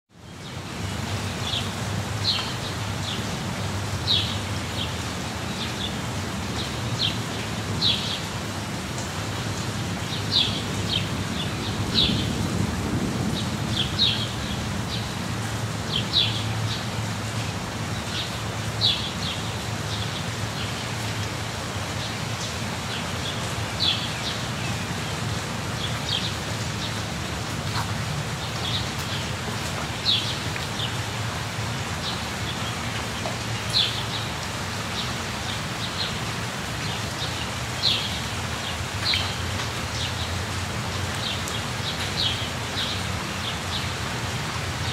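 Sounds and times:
steady rain falling: 0.1 - 44.9.

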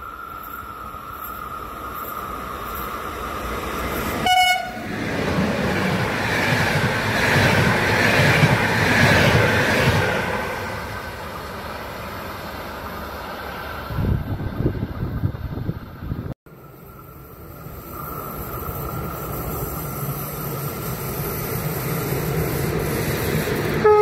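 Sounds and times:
train passing with wheel clatter: 0.0 - 24.0
train horn blast: 4.2 - 4.9.

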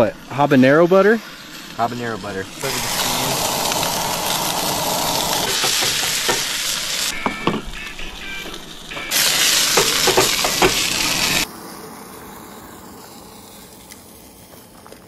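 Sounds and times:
food sizzling in a pan: 0.0 - 11.5
utensil knocking in a pan: 5.4 - 11.0.

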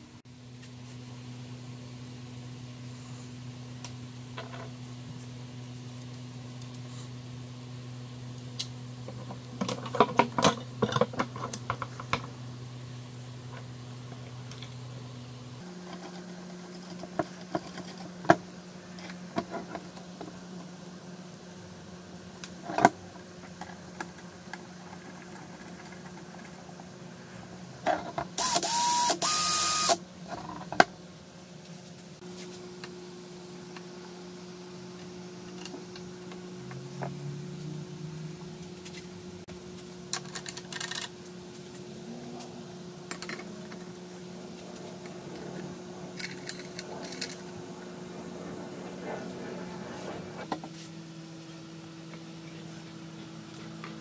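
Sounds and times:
cordless drill motor whining: 28.4 - 30.0.

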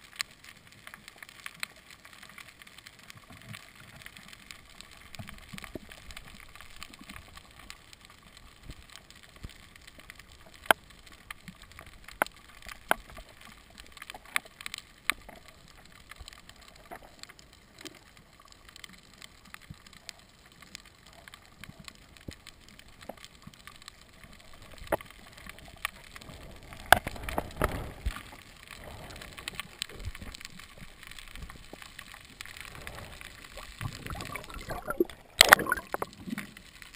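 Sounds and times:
water rushing and bubbling: 22.7 - 36.9
faint underwater hiss: 23.6 - 36.9.

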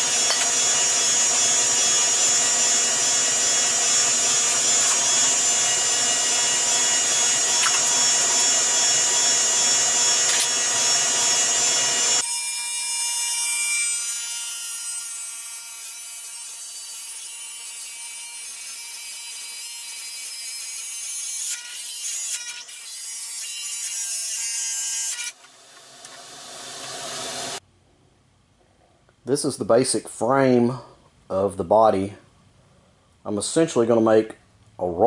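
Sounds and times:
cut-off wheel grinding metal: 0.0 - 13.4.

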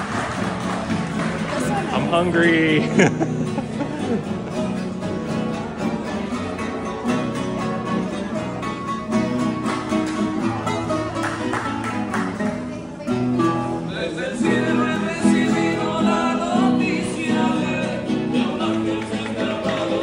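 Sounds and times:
acoustic guitars playing: 0.0 - 20.0
person singing: 13.8 - 20.0.

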